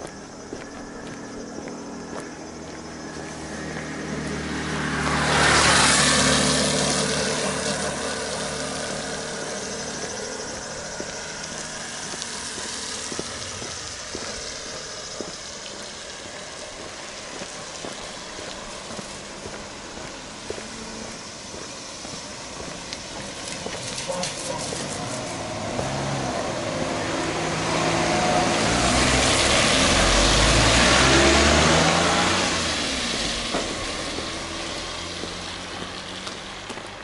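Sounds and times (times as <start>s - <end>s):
faint footsteps: 0.0s - 4.4s, 9.8s - 26.0s, 33.0s - 37.0s
vehicle driving past: 0.4s - 37.0s.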